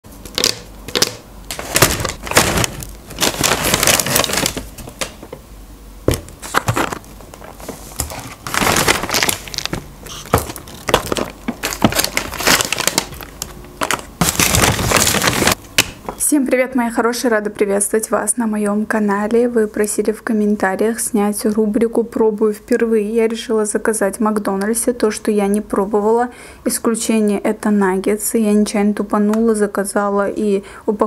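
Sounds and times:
paper bags rustling: 0.4s - 5.4s, 6.4s - 15.6s.

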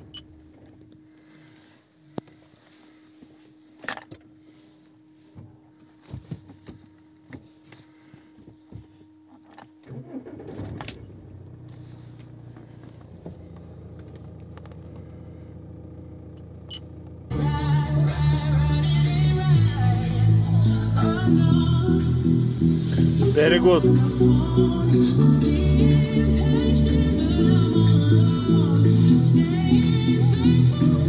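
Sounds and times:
diesel engine cranking and idling: 9.8s - 31.0s.

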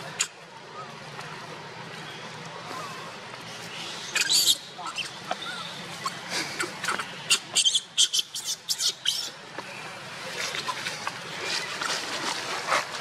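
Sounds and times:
baby monkey squeaking: 4.2s - 5.2s, 6.8s - 9.4s.

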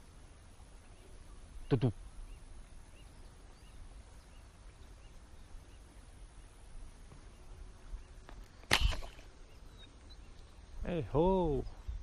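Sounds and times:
faint bird chirps: 0.0s - 12.0s
slingshot firing crack: 8.6s - 9.4s.

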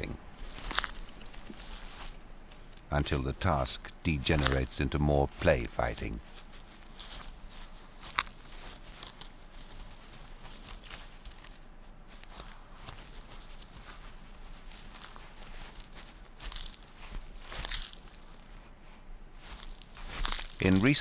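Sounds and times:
animals scratching in leaf litter: 0.0s - 3.3s, 12.2s - 18.6s, 19.3s - 21.0s.

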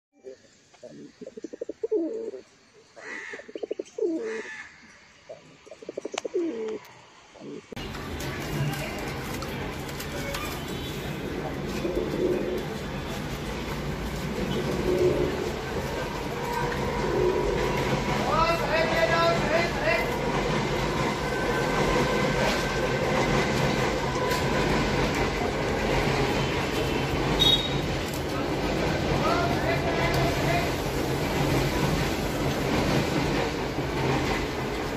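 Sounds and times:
pigeon cooing: 0.7s - 2.4s, 3.2s - 4.6s, 5.3s - 7.8s, 11.7s - 12.8s, 14.5s - 15.5s.

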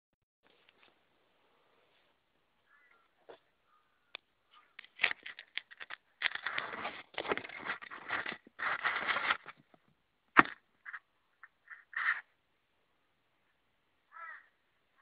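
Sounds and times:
crows cawing: 2.6s - 4.8s, 11.6s - 12.3s, 14.1s - 15.0s.

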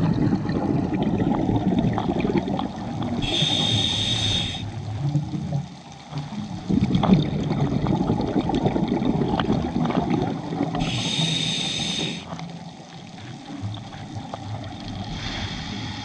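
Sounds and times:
gurgling exhaled bubbles: 0.0s - 16.0s
hissing regulator inhale: 3.2s - 4.8s, 10.8s - 12.4s, 15.1s - 16.0s.

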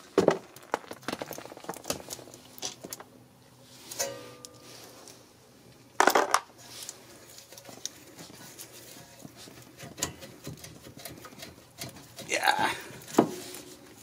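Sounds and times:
metal clicks taps and scrapes: 6.8s - 12.3s.

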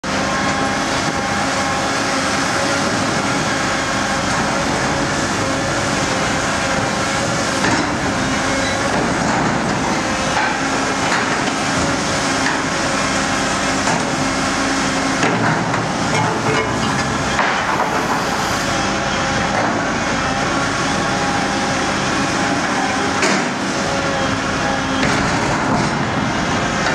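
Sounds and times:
excavator diesel engine running: 0.0s - 26.9s
hydraulic shear crushing scrap metal: 13.7s - 20.0s.

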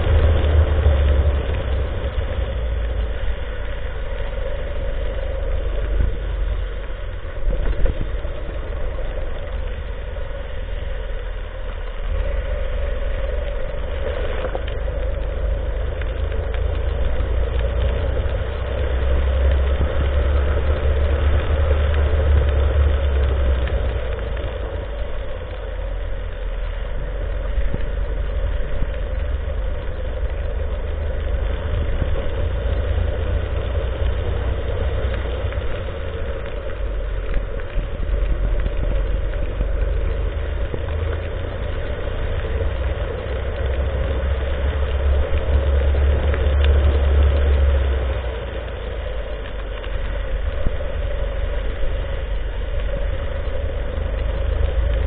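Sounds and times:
deep low rumble: 0.0s - 55.0s.

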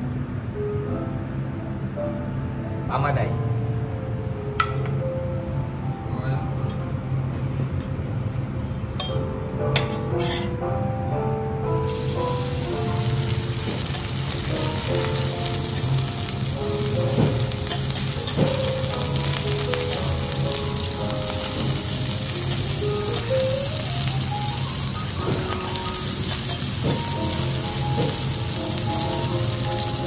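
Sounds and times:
fish sizzling in hot oil: 11.8s - 30.0s
metal spatulas knocking on griddle: 17.1s - 18.7s.

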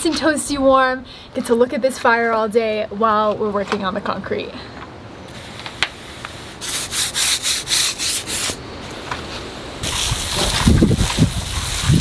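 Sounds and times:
garden hose spraying water: 5.3s - 9.0s, 9.8s - 12.0s
brush scrubbing stone wall: 6.4s - 8.6s, 9.8s - 12.0s.

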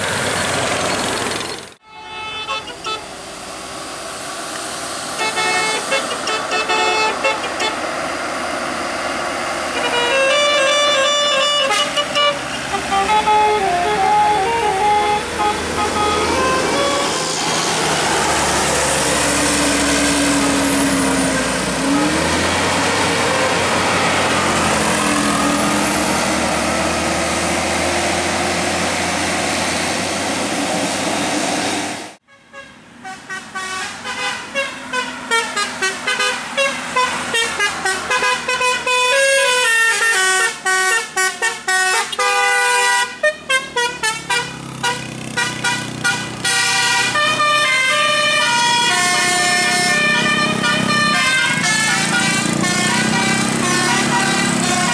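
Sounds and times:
vehicle engine and traffic: 0.0s - 54.9s
musical horn playing fast tune: 1.8s - 3.1s, 5.2s - 7.8s, 9.7s - 17.2s, 32.3s - 54.9s
sliding horn notes: 1.8s - 3.1s, 5.2s - 7.9s, 9.7s - 29.4s, 32.3s - 54.9s.

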